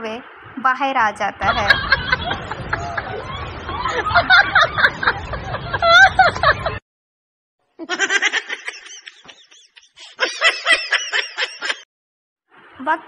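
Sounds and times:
person laughing: 0:01.5 - 0:06.8, 0:07.8 - 0:11.8.

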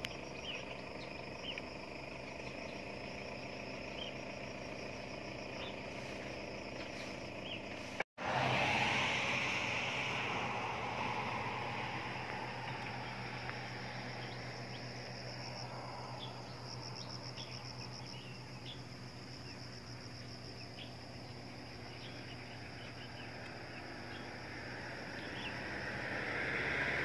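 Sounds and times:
insects trilling: 0:00.0 - 0:27.0
rush of noise: 0:07.9 - 0:14.4.

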